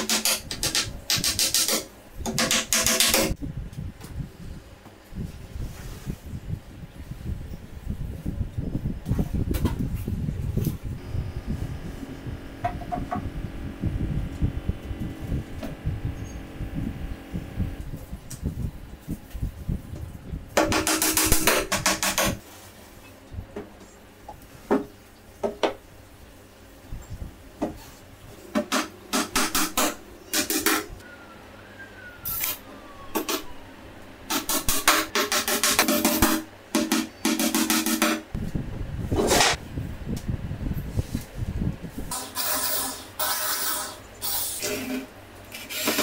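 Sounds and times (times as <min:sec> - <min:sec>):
hammer driving nails into board: 0:00.0 - 0:03.3, 0:34.3 - 0:38.2
low rumble: 0:10.2 - 0:18.7.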